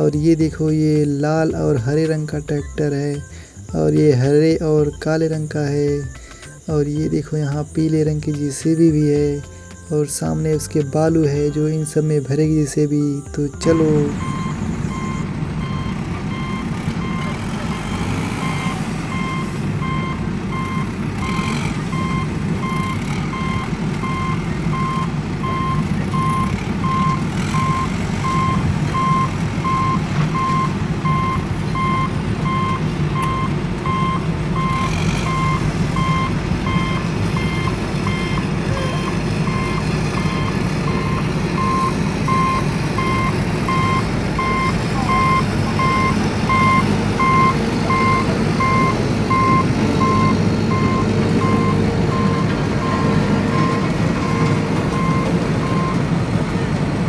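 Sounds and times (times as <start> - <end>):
low engine rumble: 0.0 - 57.0
reversing alarm beeping: 13.1 - 56.8.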